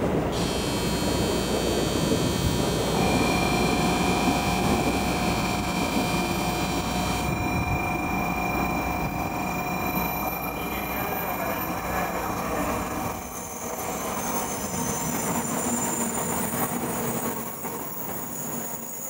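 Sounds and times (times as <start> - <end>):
train running rumble: 0.0 - 19.0
low steady tones: 0.3 - 15.4
high-pitched whining tones: 0.3 - 19.0.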